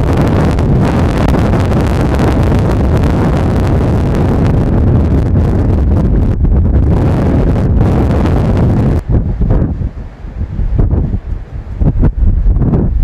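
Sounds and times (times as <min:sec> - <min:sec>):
storm wind buffeting microphone: 0:00.0 - 0:13.0.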